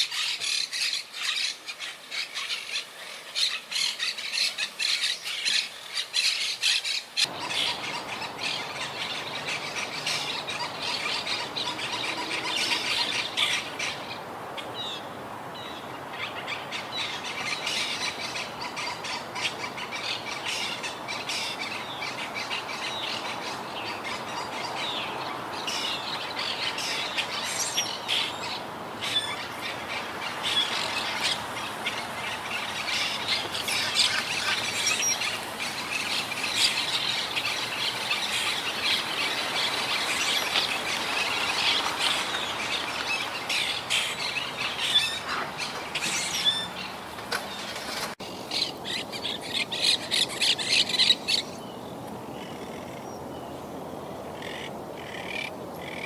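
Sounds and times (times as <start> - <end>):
parakeets chattering and squawking: 25.7 - 51.6.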